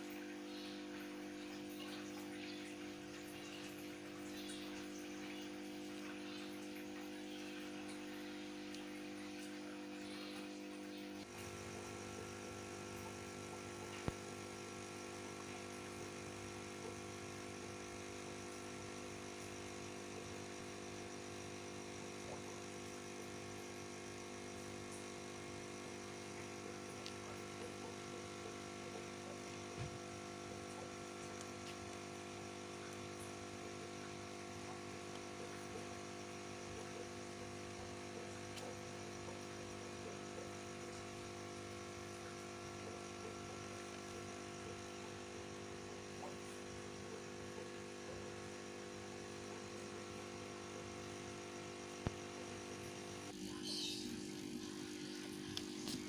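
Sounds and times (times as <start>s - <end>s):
steady multi-tone hum: 0.0s - 56.0s.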